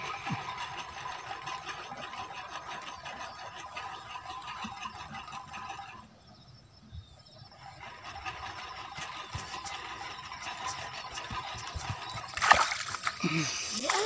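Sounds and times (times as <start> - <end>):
hands sloshing in muddy water: 12.2 - 14.0.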